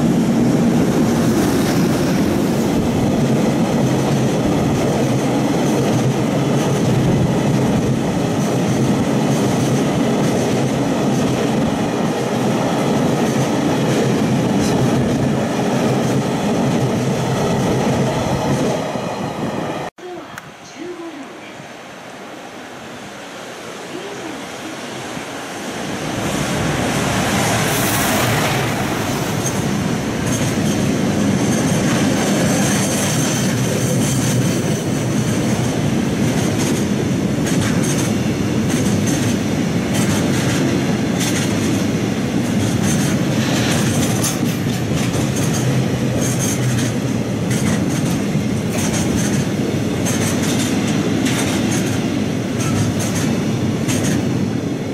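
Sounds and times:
freight train passing: 0:00.0 - 0:19.9, 0:20.8 - 0:54.9
wheels clattering over rail joints: 0:26.5 - 0:54.4.

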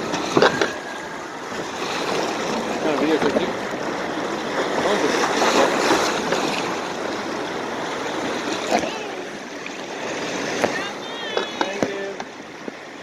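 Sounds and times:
rushing splashing water: 0:00.0 - 0:13.0
faint voices: 0:10.5 - 0:12.3.

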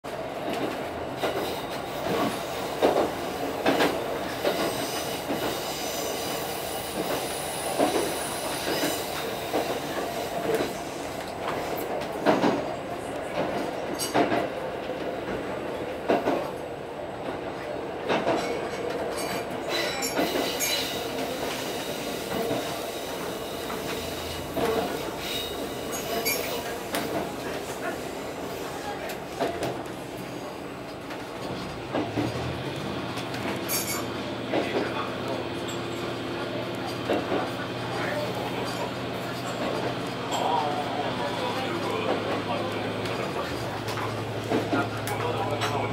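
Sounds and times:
railcar running: 0:00.0 - 0:45.9
faint high wheel squeal: 0:19.2 - 0:26.8, 0:33.7 - 0:34.1.

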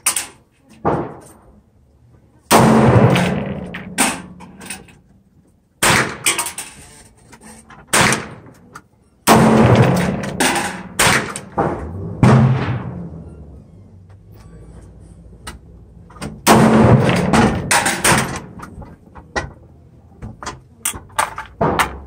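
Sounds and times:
gunshots echoing: 0:02.5 - 0:04.8, 0:05.8 - 0:06.4, 0:07.9 - 0:08.6, 0:09.2 - 0:13.2, 0:16.4 - 0:18.8.

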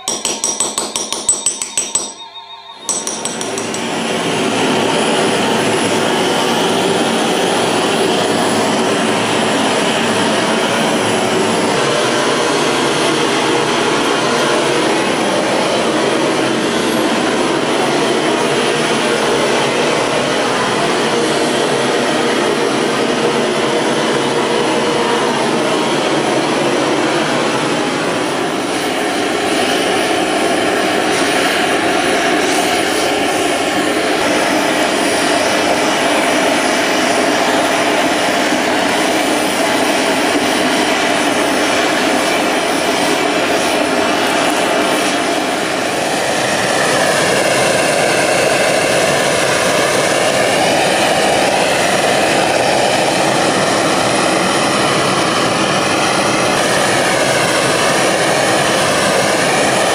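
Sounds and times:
wavering whistle-like tone: 0:00.0 - 0:00.4, 0:01.0 - 0:04.4.

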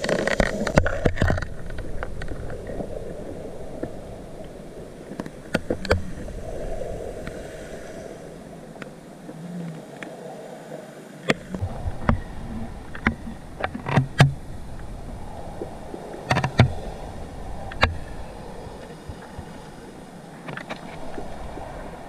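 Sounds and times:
sharp underwater clicks and knocks: 0:00.0 - 0:02.8, 0:05.1 - 0:06.2, 0:11.2 - 0:12.2, 0:12.9 - 0:14.9, 0:16.2 - 0:16.8, 0:17.7 - 0:18.1, 0:20.4 - 0:21.3
muffled underwater background: 0:00.0 - 0:22.0.

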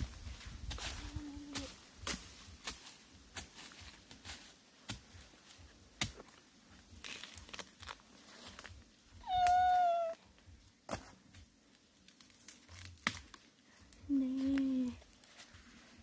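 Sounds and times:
cat meowing: 0:09.2 - 0:10.2.

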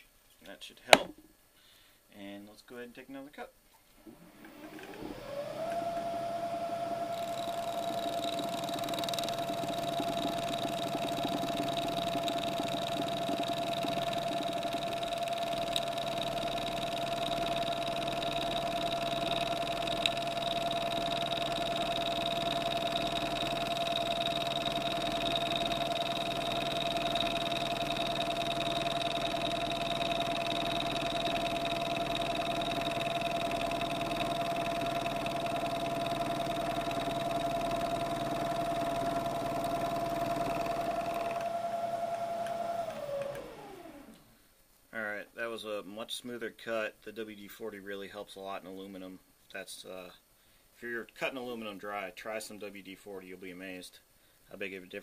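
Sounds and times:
milling spindle whine: 0:04.1 - 0:44.2
end mill cutting aluminium: 0:04.6 - 0:44.2.

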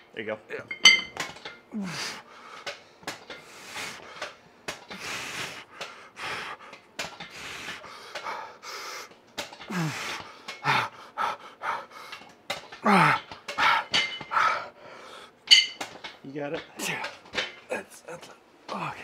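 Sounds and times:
person grunting: 0:01.7 - 0:02.1, 0:09.7 - 0:10.1, 0:12.8 - 0:13.3
person breathing hard: 0:01.7 - 0:12.3, 0:12.9 - 0:15.4.

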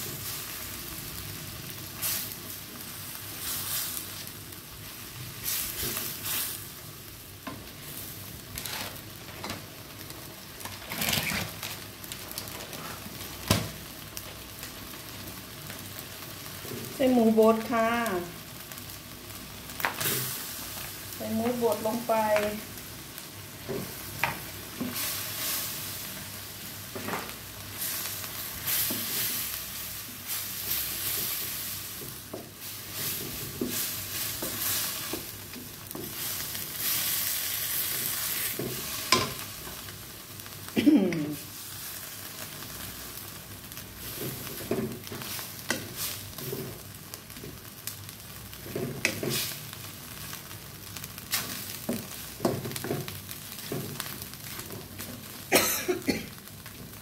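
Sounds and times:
meat sizzling in a wok: 0:00.0 - 0:57.0
spatula scraping a pan: 0:08.6 - 0:09.0, 0:48.6 - 0:49.6.

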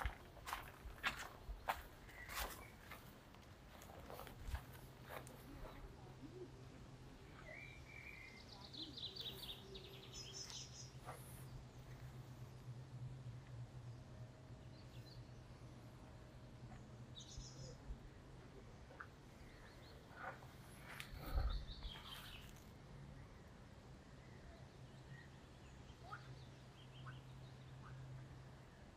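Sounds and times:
steady low hum: 0:00.0 - 0:28.9
faint bird chirps: 0:01.5 - 0:03.1, 0:03.8 - 0:12.2, 0:18.6 - 0:28.8.

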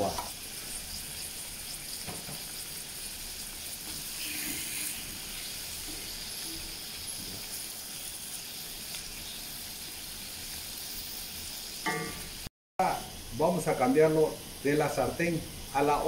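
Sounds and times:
pork sizzling in a wok: 0:00.0 - 0:16.0.

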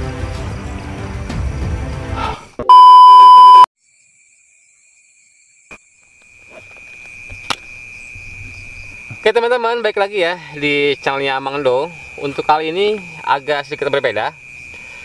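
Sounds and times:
background music: 0:00.0 - 0:02.4
steady electronic beep: 0:02.7 - 0:03.7
high-pitched insect trill: 0:03.8 - 0:15.0.

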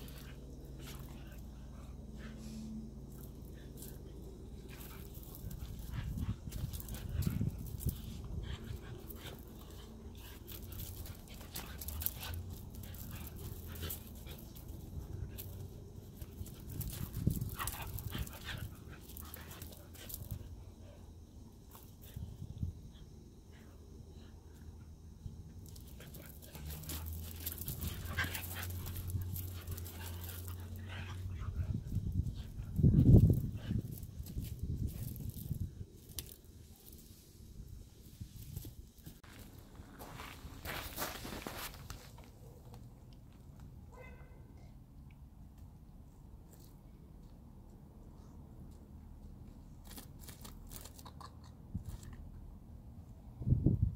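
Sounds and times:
dogs play growling: 0:00.0 - 0:20.4, 0:25.6 - 0:35.4
paws scuffing on gravel: 0:16.2 - 0:20.3, 0:25.8 - 0:31.8, 0:38.4 - 0:42.4
dogs panting: 0:25.7 - 0:34.1.

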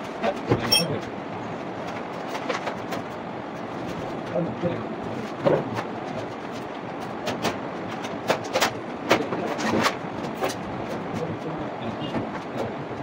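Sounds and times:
steady background rumble: 0:00.0 - 0:13.0.

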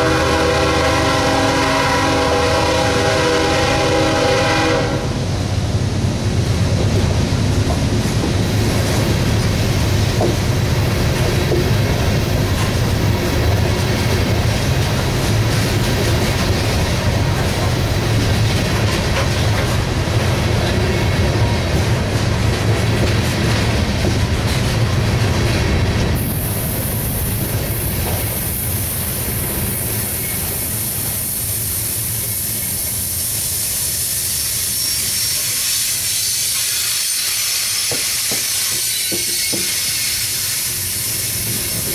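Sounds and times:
train wheels rumbling on rail: 0:00.0 - 0:41.9
steady high hiss: 0:26.2 - 0:37.8.

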